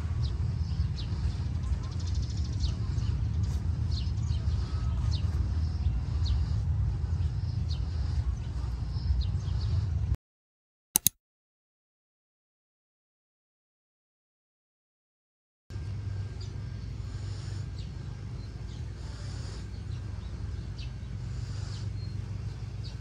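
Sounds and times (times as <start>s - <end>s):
small birds chirping: 0.0s - 10.0s, 15.8s - 23.0s
person breathing: 3.8s - 10.2s, 16.9s - 23.0s
quick clicks: 11.0s - 11.2s.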